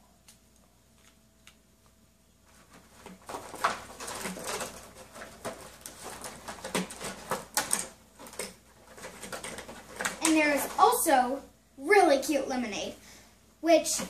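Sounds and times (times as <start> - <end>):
paper and plastic rustling: 2.4 - 11.2.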